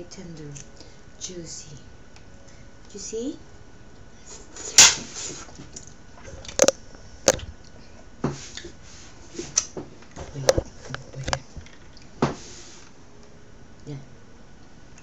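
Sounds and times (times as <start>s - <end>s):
eating clicks and smacks: 5.8s - 7.8s.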